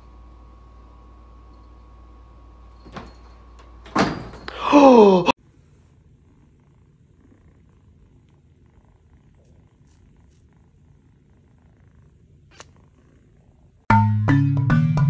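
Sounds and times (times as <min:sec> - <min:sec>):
kitten purring: 0:05.4 - 0:13.9.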